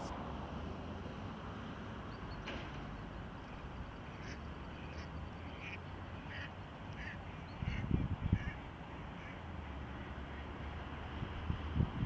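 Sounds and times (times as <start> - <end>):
ducks quacking: 4.1 - 9.4.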